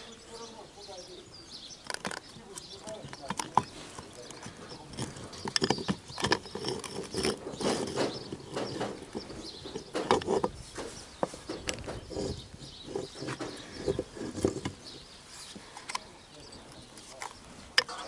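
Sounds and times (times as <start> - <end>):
clinks and knocks of metal parts: 1.8 - 14.8.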